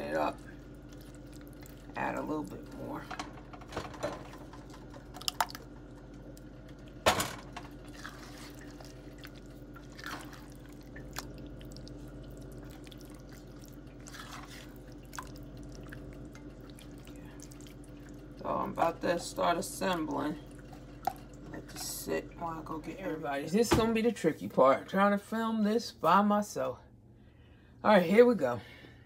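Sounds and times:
wet stirring of thick sauce: 0.1s - 2.9s, 7.7s - 22.0s.

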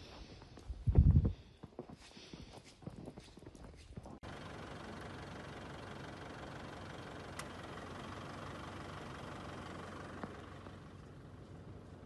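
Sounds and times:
pickup engine idling: 4.2s - 12.0s.

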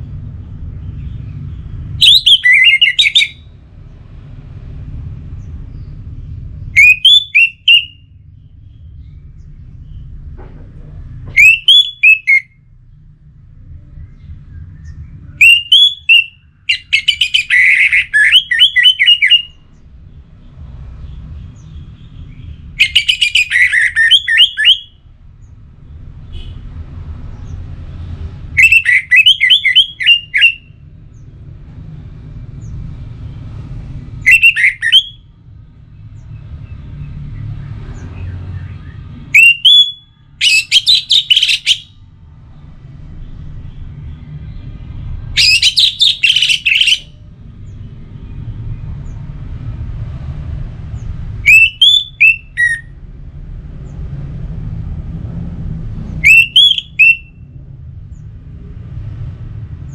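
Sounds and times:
thrush whistling song: 0.7s - 3.6s, 6.7s - 10.1s, 11.3s - 12.7s, 14.0s - 19.8s, 21.6s - 25.0s, 28.4s - 31.2s, 34.1s - 35.4s, 36.0s - 42.0s, 43.7s - 48.4s, 51.0s - 53.0s, 56.1s - 57.6s
faint low rumble: 12.6s - 15.4s.

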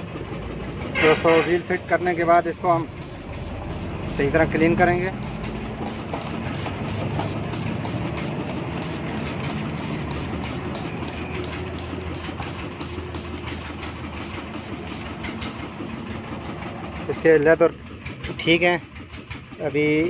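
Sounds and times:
pressure washer jet hissing: 1.4s - 15.4s
washer motor hum: 1.6s - 17.2s.

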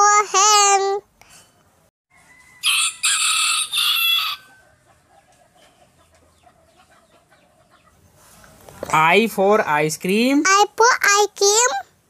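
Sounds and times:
rooster crowing: 2.1s - 5.3s.

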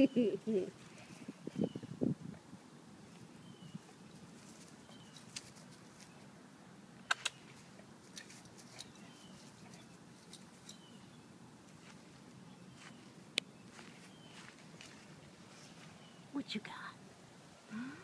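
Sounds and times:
sharp clicks: 7.1s - 7.4s.

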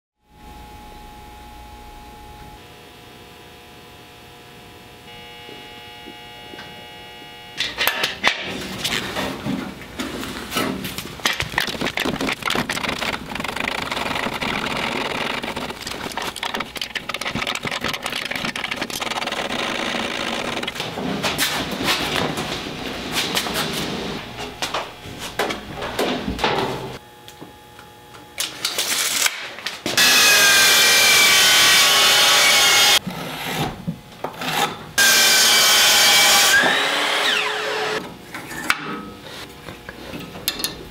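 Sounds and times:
steady hum: 0.2s - 28.5s
parts clicking and scraping: 7.6s - 22.5s
miter saw cutting board: 11.3s - 21.5s, 23.3s - 27.0s, 29.9s - 33.7s, 34.4s - 38.0s.

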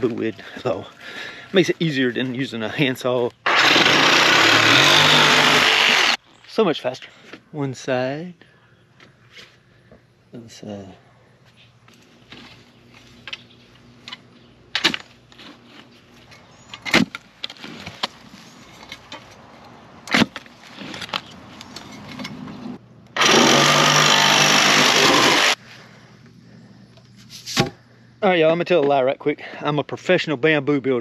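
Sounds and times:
power saw cutting bamboo: 3.4s - 6.2s, 23.2s - 25.6s.

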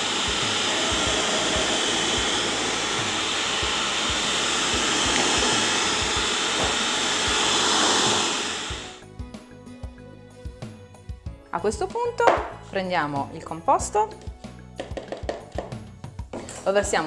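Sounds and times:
food processor motor running: 0.0s - 9.0s.

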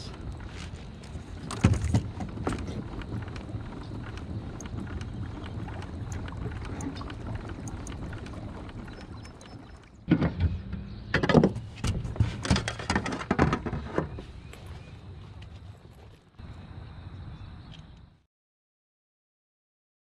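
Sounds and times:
steady low rumble: 0.0s - 11.1s.

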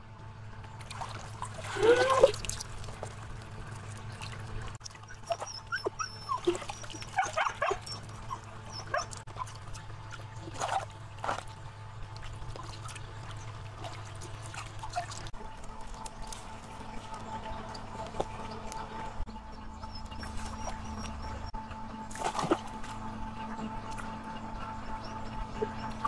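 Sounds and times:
low steady hum: 0.0s - 26.0s
dog whimpering: 1.8s - 2.4s, 5.1s - 9.6s.

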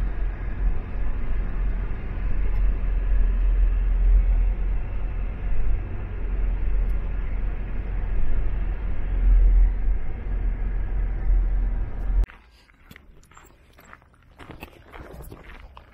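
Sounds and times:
car interior road rumble: 0.0s - 12.3s.

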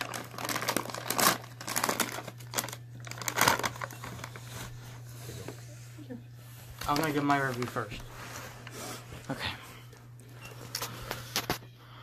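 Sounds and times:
paper bag rustling: 0.0s - 5.8s, 6.5s - 9.4s.

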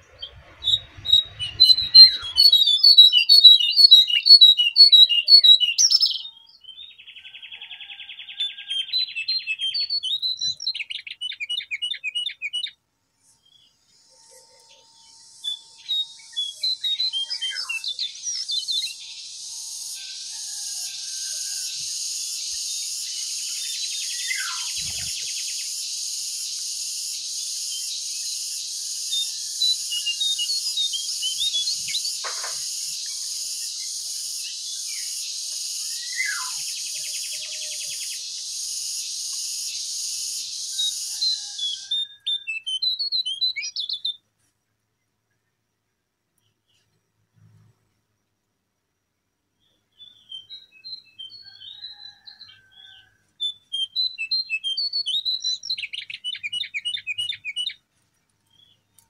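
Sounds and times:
bird chirps and whistles: 0.0s - 6.4s, 8.4s - 12.8s, 15.3s - 19.4s, 21.4s - 44.2s, 53.4s - 57.8s.

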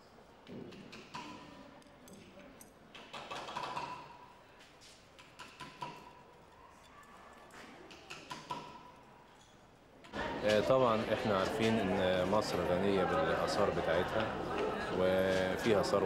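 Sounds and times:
tools and pottery tapping: 0.4s - 4.4s, 5.2s - 6.9s, 7.8s - 9.6s.

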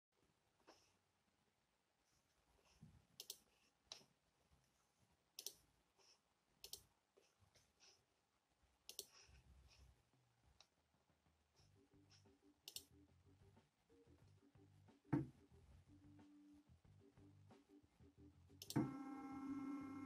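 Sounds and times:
faint sharp clicks: 6.6s - 6.9s, 12.7s - 12.9s.

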